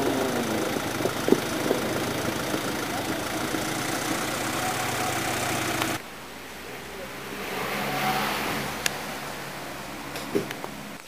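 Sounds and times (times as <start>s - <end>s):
car engine idling: 0.0s - 6.4s.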